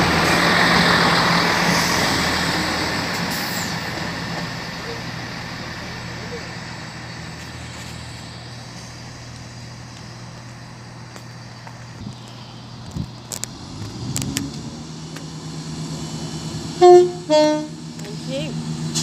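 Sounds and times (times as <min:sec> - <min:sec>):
approaching train engine: 0:00.0 - 0:19.0
train engine drone: 0:00.0 - 0:19.0.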